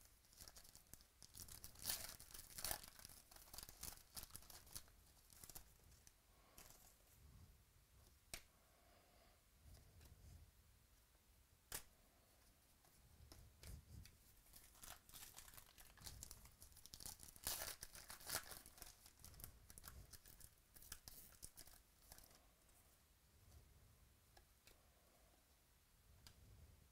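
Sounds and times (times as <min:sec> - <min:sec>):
wrapper tearing and crinkling: 0:00.3 - 0:05.7, 0:14.5 - 0:22.3.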